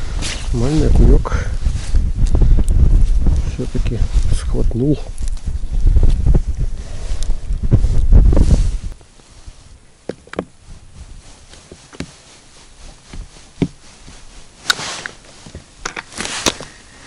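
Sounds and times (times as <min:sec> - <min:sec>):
low rumble: 0:00.0 - 0:09.6
short rustles: 0:00.0 - 0:17.0.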